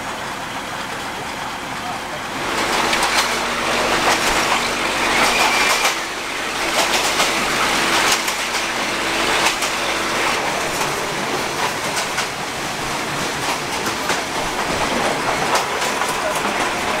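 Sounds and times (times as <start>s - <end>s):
train rushing rumble: 0.0s - 17.0s
wheels clacking on track: 0.8s - 17.0s.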